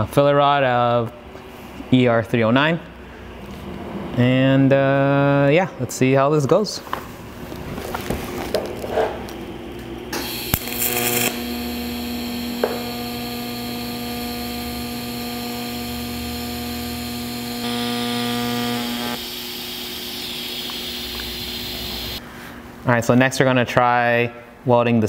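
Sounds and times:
welding arc buzzing hum: 0:10.1 - 0:22.2.

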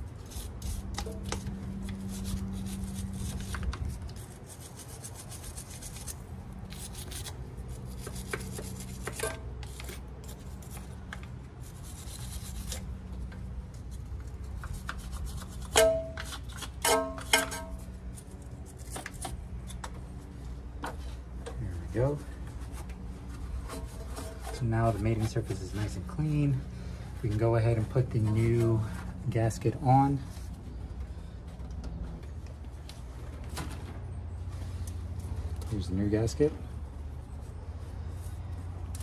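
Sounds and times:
scraping and scrubbing metal: 0:00.0 - 0:19.9, 0:22.6 - 0:29.5.

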